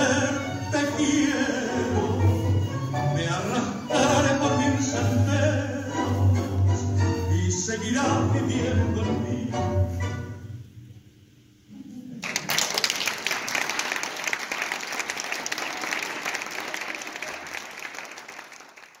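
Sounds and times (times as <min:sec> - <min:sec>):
audience applause: 0:12.2 - 0:19.0.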